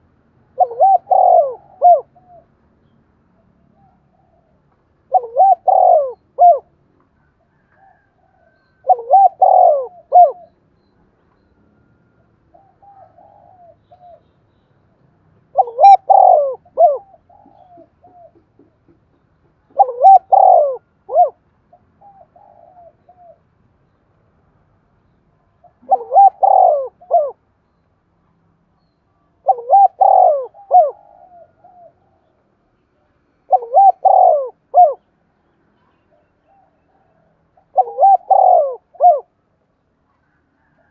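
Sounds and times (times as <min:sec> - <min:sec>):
dove cooing: 0:00.0 - 0:02.6, 0:03.7 - 0:06.7, 0:07.5 - 0:10.6, 0:12.5 - 0:14.3, 0:15.4 - 0:19.0, 0:19.7 - 0:23.5, 0:25.6 - 0:27.4, 0:29.4 - 0:32.4, 0:33.0 - 0:35.1, 0:35.9 - 0:39.4.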